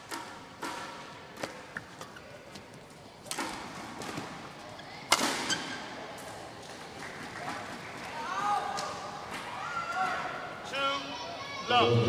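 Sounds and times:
racket striking shuttlecock: 0.0 - 1.8.

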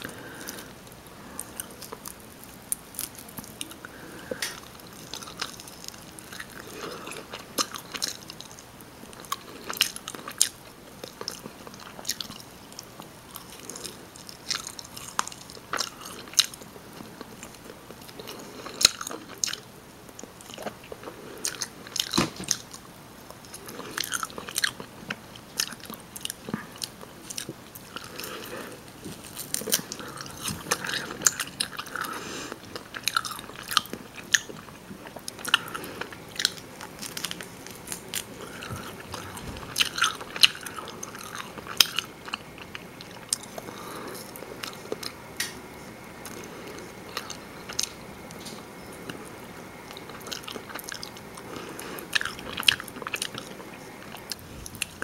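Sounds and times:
chewing and biting chicken: 0.0 - 45.2, 46.0 - 55.0.

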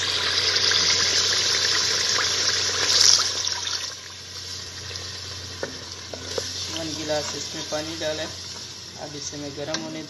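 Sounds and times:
water pouring into a pot: 0.0 - 5.1.

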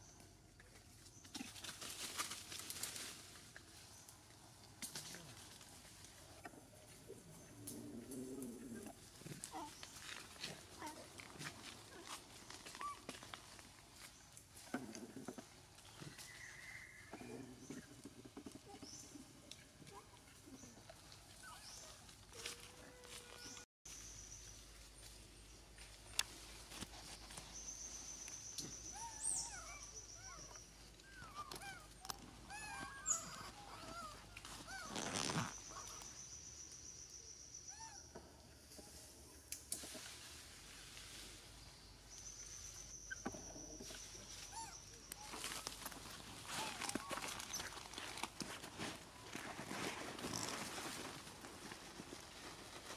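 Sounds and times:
leaves rustling: 1.1 - 18.0, 18.6 - 36.4, 38.9 - 52.9
animals rustling in leaf litter: 1.4 - 4.1, 20.8 - 25.0, 43.8 - 52.9.

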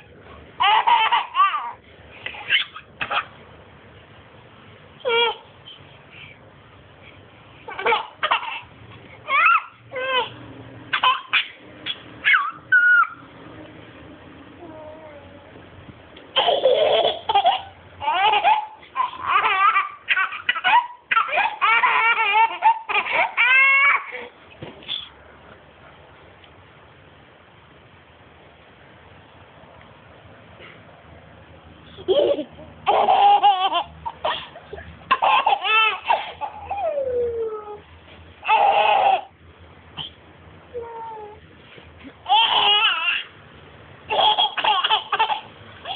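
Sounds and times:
toddler laughing: 0.6 - 3.4, 5.0 - 5.5, 7.7 - 13.2, 16.3 - 24.3, 31.9 - 37.8, 38.4 - 39.3, 42.1 - 43.4, 44.1 - 45.9.

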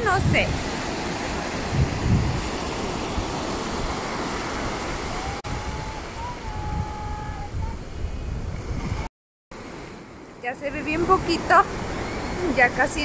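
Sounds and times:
wind buffeting microphone: 0.0 - 9.1
ocean waves breaking on beach: 0.0 - 13.0.

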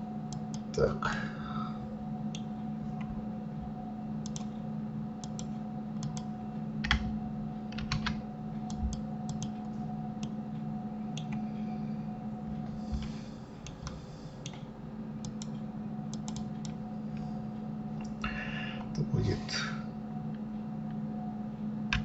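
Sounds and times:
low electrical hum: 0.0 - 22.0
keyboard and mouse clicks: 4.2 - 4.5, 5.2 - 7.1, 7.7 - 10.4, 15.2 - 16.8.

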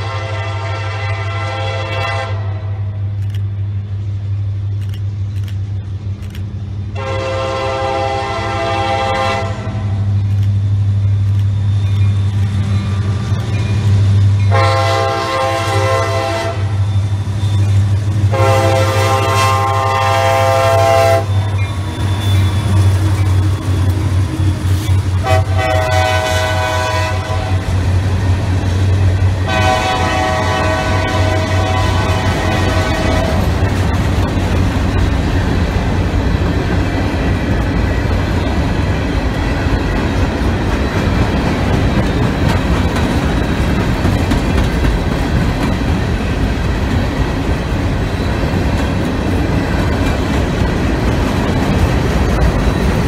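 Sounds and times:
locomotive air horn blasts: 0.0 - 2.9, 7.0 - 10.1, 14.5 - 17.0, 18.3 - 21.5, 25.2 - 27.7, 29.4 - 33.6
low train rumble: 0.0 - 53.0.

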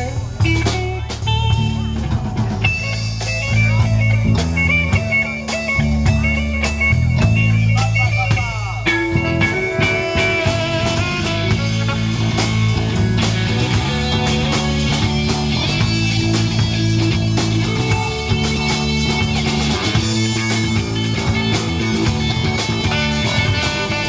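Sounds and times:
bass guitar: 0.0 - 24.0
drum kit: 0.0 - 24.0
electric guitar: 0.0 - 24.0
saxophone: 8.9 - 17.2, 17.8 - 24.0.

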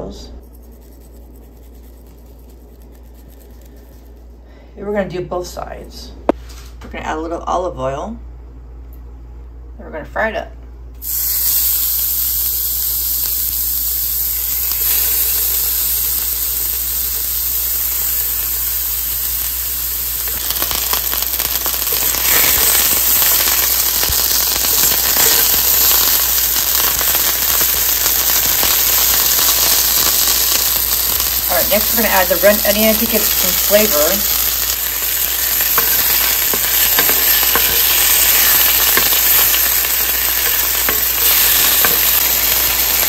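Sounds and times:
chicken sizzling in oil: 11.0 - 43.0
oil spitting and crackling: 11.0 - 43.0.

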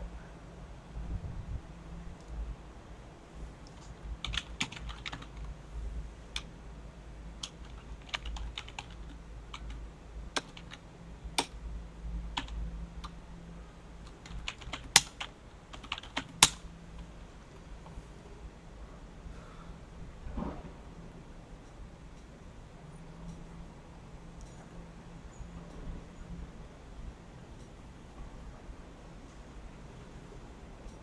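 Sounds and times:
computer keyboard key clicks: 3.7 - 5.5, 7.4 - 9.8, 10.4 - 10.8, 12.4 - 13.2, 14.1 - 16.6.

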